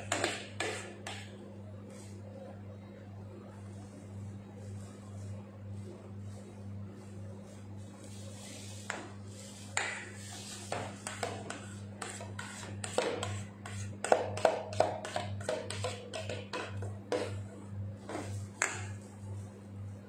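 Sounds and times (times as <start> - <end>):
steady low hum: 0.0 - 20.0
metal knife scraping metal bowl: 10.5 - 16.7.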